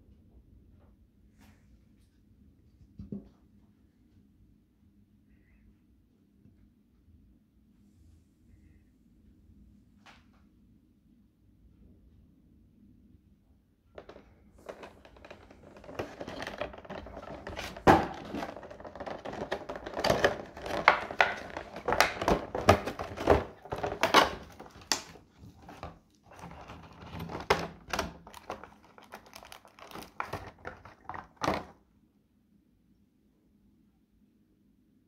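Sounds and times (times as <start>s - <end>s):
plastic packaging crinkling: 14.0s - 31.8s.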